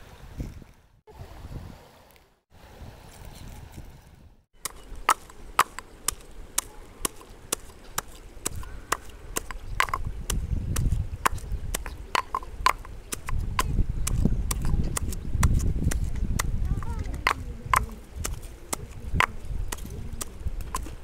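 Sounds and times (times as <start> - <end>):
stone pestle pounding in mortar: 4.6 - 16.6.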